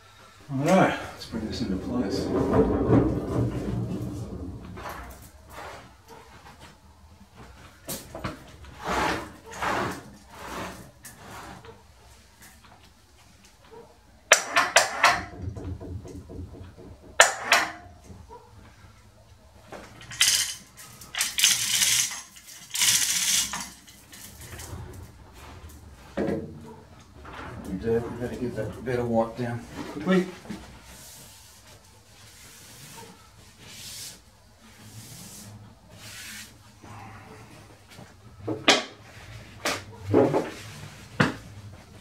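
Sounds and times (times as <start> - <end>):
hoist chain clinking and rattling: 19.8 - 24.8.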